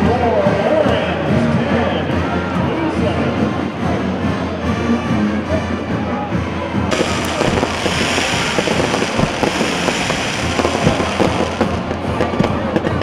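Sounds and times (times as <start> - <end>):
steady hiss: 6.9 - 11.9
fireworks crackling and popping: 6.9 - 12.6.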